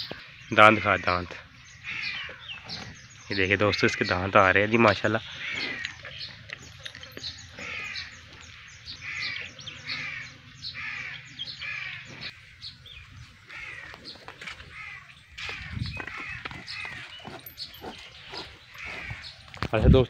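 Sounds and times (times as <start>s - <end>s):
crows cawing: 0.0s - 2.6s, 5.2s - 6.2s, 7.5s - 17.4s, 18.6s - 19.6s.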